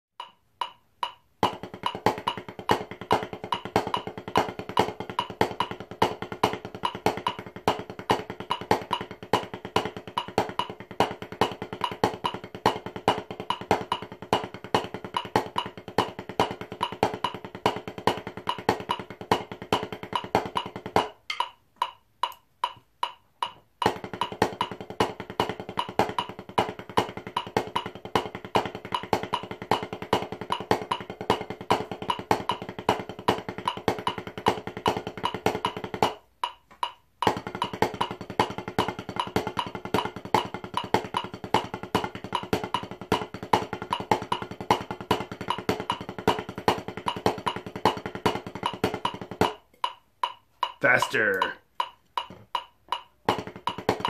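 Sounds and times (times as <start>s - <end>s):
drumsticks on practice pad: 0.2s - 2.8s, 18.5s - 29.9s, 30.5s - 41.7s, 43.8s - 54.0s.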